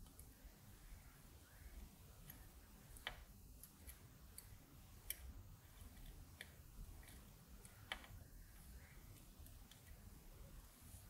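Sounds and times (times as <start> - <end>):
faint sharp soldering clicks: 1.7 - 10.1.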